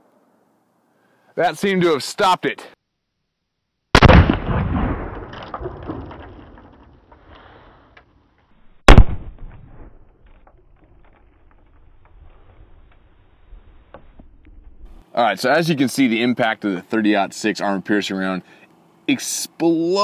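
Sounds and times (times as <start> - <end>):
gunshot echo: 4.0 - 5.7, 8.8 - 10.0
rifle shots hitting armor plate: 8.9 - 10.0.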